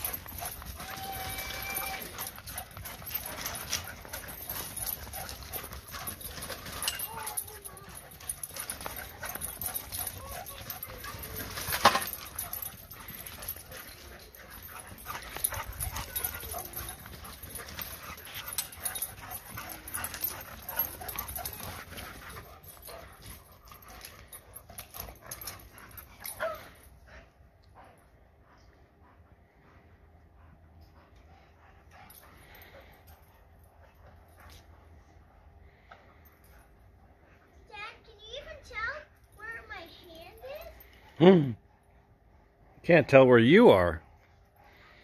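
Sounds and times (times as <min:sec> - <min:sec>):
dog high call: 0:00.0 - 0:21.7
dogs scuffling feet: 0:00.0 - 0:27.2.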